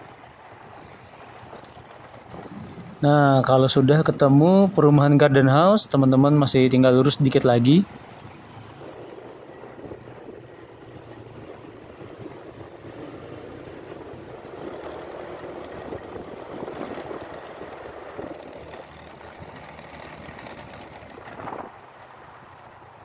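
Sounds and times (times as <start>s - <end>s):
road and air noise: 0.0s - 23.0s
motorbike engine running: 8.0s - 21.8s.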